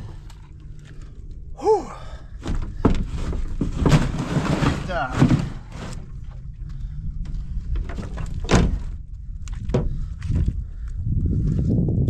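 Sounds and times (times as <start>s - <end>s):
steady low rumble: 0.0s - 12.0s
sharp knocks and thunks: 2.4s - 6.0s, 7.7s - 9.0s, 9.6s - 10.4s.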